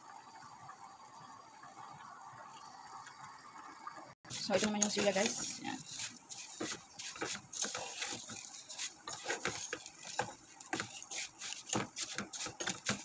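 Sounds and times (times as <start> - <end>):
noodles toasting in oil: 4.3 - 13.0
wooden spatula scraping pan: 4.3 - 13.0.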